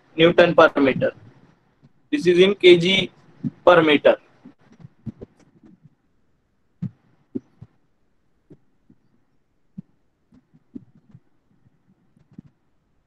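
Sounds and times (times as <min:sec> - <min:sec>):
soft thumps and clicks: 0:00.9 - 0:02.1, 0:03.1 - 0:03.6, 0:04.3 - 0:06.0, 0:06.8 - 0:12.7.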